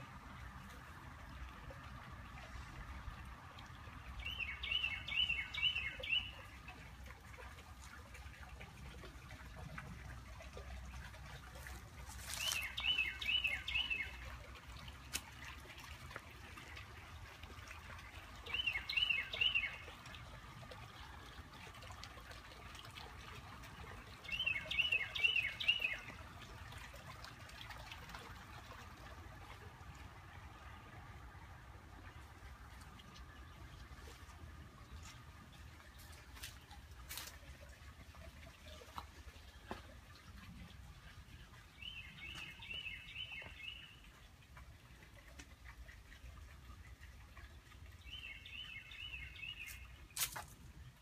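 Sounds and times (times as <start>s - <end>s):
songbird singing: 4.1s - 6.8s, 12.2s - 14.4s, 18.4s - 20.0s, 24.2s - 26.2s, 41.0s - 44.2s, 48.0s - 51.0s.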